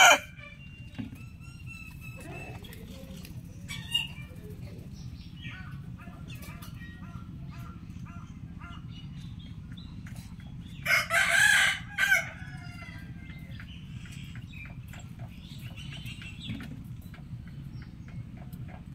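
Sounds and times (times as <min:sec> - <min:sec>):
rooster crowing: 0:00.0 - 0:00.6, 0:10.8 - 0:13.3
low background hum: 0:00.0 - 0:18.9.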